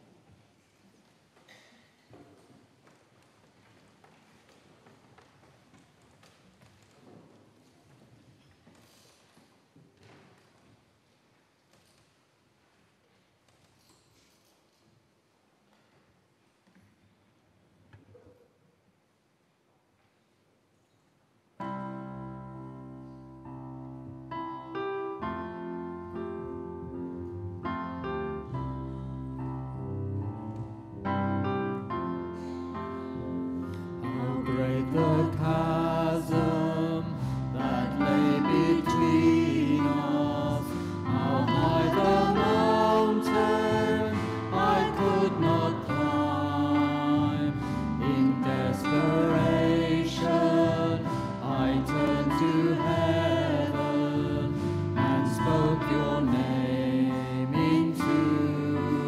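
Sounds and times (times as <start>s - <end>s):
voices singing worship song: 34.0s - 59.0s.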